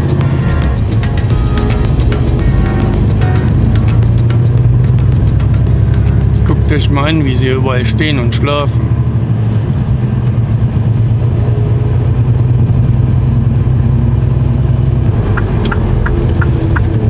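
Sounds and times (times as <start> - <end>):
quick regular ticking: 0.0 - 6.7
truck diesel engine running: 0.0 - 17.0.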